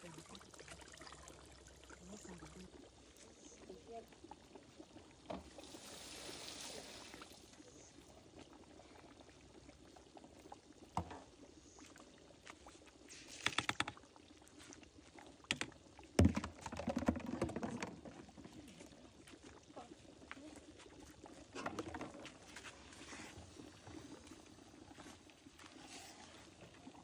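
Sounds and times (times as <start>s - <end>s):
rice pouring hiss: 5.5s - 7.8s
rice clicking in pot: 13.4s - 14.1s.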